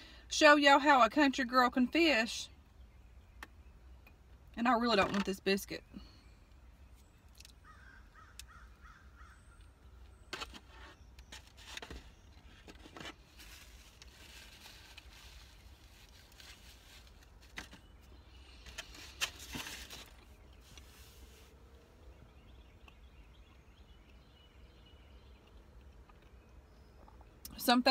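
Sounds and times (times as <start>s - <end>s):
biscuit being chewed: 25.3s - 27.4s.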